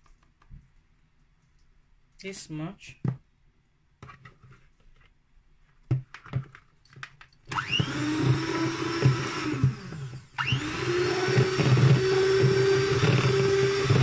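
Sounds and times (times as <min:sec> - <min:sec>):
electric hand mixer whirring: 0:07.5 - 0:14.0.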